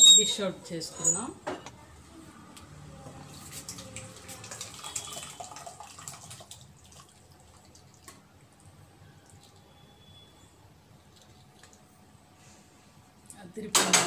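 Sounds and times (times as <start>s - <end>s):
thick gravy dripping and splatting: 3.2s - 8.4s.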